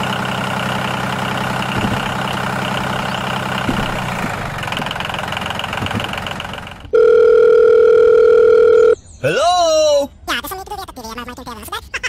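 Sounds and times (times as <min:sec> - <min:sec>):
tractor engine running: 0:00.0 - 0:08.9
telephone dial tone: 0:06.9 - 0:09.0.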